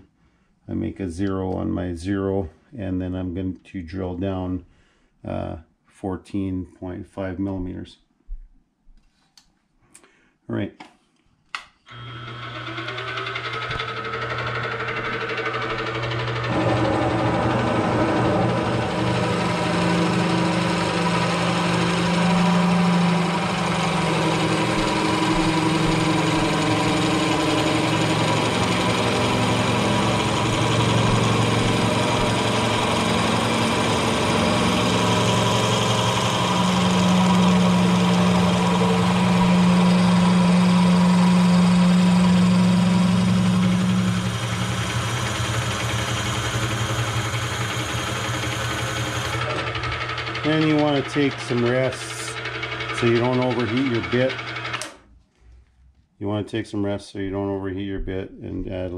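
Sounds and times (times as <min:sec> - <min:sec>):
drill bit cutting steel: 0:11.9 - 0:55.0
milling machine motor hum: 0:11.9 - 0:55.0.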